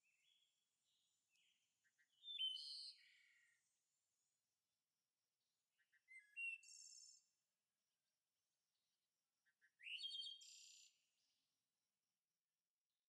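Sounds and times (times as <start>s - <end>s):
songbird singing faintly: 0.0s - 4.4s, 5.6s - 7.5s, 9.4s - 11.4s.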